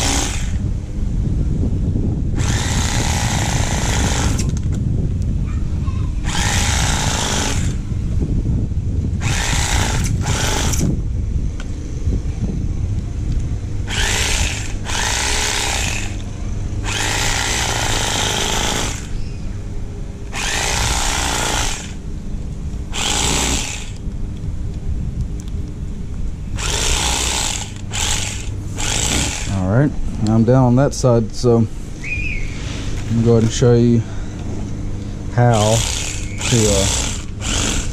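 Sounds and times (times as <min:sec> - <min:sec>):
blades cutting scaly hide: 0:00.0 - 0:00.6, 0:02.4 - 0:04.6, 0:06.2 - 0:07.8, 0:09.2 - 0:10.9, 0:13.9 - 0:16.2, 0:16.8 - 0:19.2, 0:20.3 - 0:22.0, 0:22.9 - 0:24.0, 0:26.6 - 0:29.6, 0:35.4 - 0:37.9
electric knife motor hum: 0:00.0 - 0:00.7, 0:02.3 - 0:04.6, 0:06.2 - 0:07.9, 0:09.1 - 0:11.0, 0:13.8 - 0:19.3, 0:20.3 - 0:22.0, 0:22.9 - 0:24.0, 0:26.6 - 0:29.6, 0:35.4 - 0:37.9.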